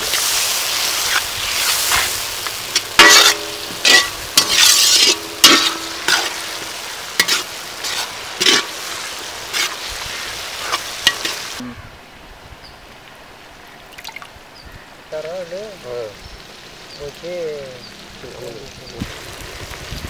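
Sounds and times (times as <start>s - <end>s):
vegetables sizzling in oil: 0.0s - 11.6s, 15.1s - 20.0s
metal spatula scraping pan: 1.0s - 9.9s.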